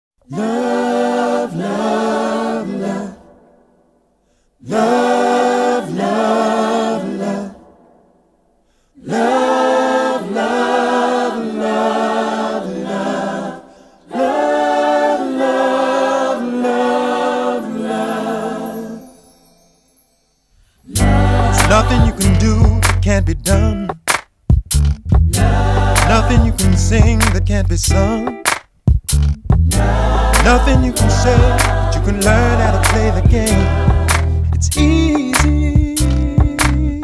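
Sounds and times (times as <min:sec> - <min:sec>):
choir singing a cappella: 0:00.2 - 0:03.8, 0:04.6 - 0:08.1, 0:09.0 - 0:19.5, 0:20.8 - 0:22.8, 0:25.3 - 0:27.3, 0:29.7 - 0:36.9.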